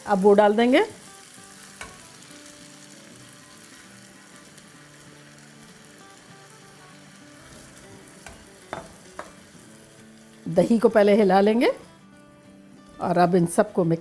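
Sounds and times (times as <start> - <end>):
faint background music: 0.0 - 14.0
food sizzling in oil: 0.0 - 14.0.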